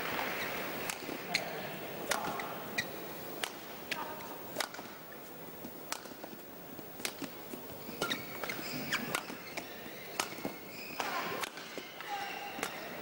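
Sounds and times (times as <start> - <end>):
shoes squeaking on court: 0.0 - 13.0
racket striking shuttlecock: 0.2 - 1.4, 2.0 - 5.0, 5.9 - 6.3, 7.0 - 7.3, 8.0 - 13.0.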